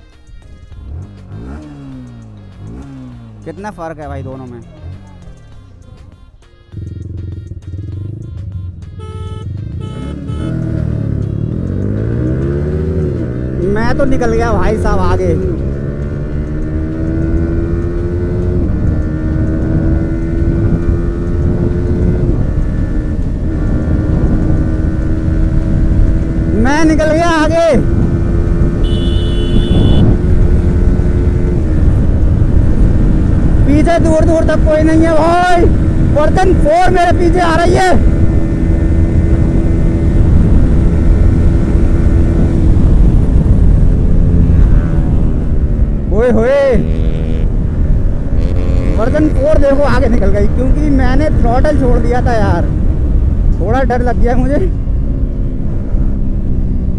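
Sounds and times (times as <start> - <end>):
motorcycle engine revving high: 0.8 - 5.3, 6.7 - 56.9
wind rushing over microphone: 17.0 - 56.9.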